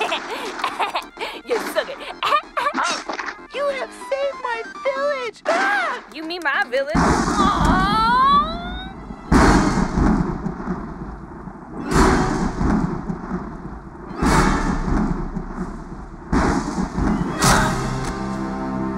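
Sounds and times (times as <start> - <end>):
thunderclaps: 6.9 - 18.2.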